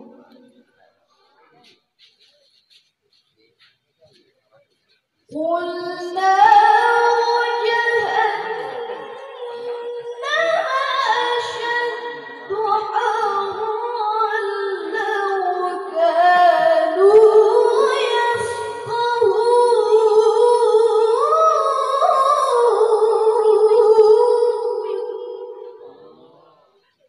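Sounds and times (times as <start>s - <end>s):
woman chanting into a microphone: 5.3s - 26.1s.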